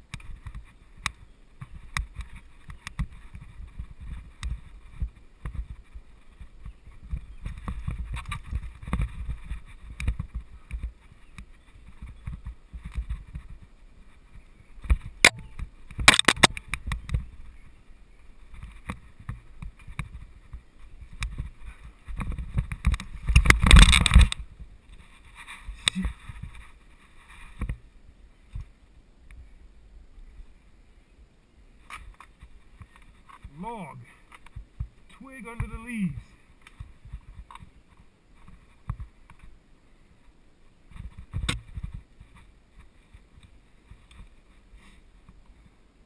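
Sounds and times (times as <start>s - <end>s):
bike rattling over dirt trail: 0.0s - 27.9s.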